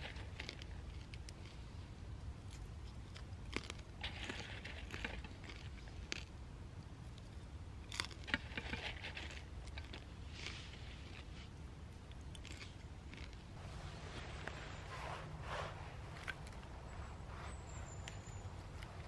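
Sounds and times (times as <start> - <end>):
popcorn crunching: 0.0 - 1.8, 2.4 - 6.4, 7.1 - 11.3, 12.0 - 13.6
steady low rumble: 10.2 - 19.0.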